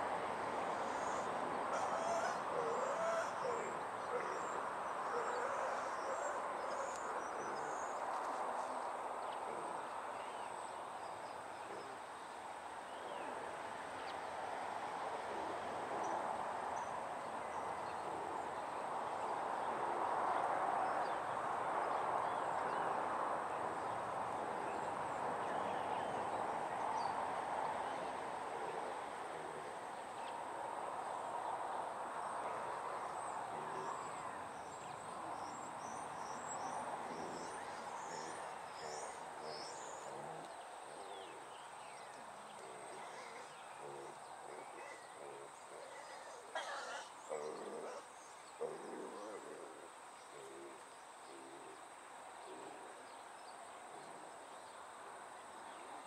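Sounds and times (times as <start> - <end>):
faint bird calls: 0.7 - 14.2, 32.4 - 51.8.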